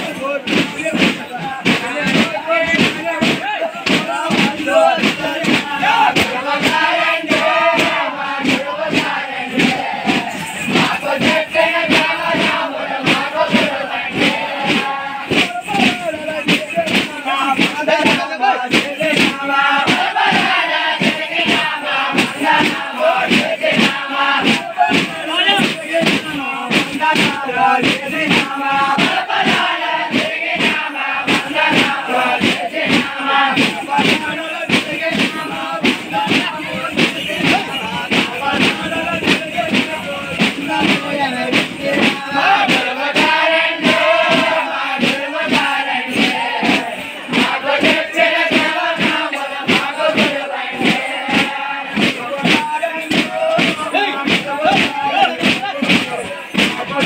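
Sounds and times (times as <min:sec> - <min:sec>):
frame drums beating fast: 0:00.0 - 0:57.0
men singing and chanting: 0:00.0 - 0:57.0.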